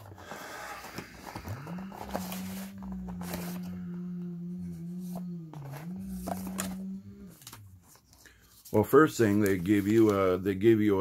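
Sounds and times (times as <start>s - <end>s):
cardboard box being opened: 0.0s - 8.0s
man humming: 1.2s - 7.9s.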